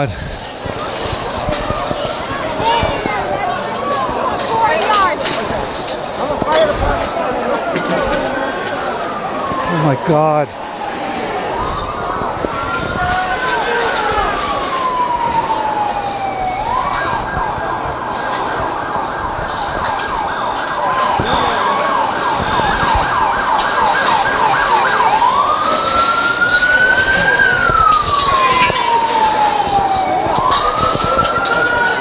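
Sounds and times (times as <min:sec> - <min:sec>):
electronic siren wailing and yelping: 0:09.0 - 0:32.0.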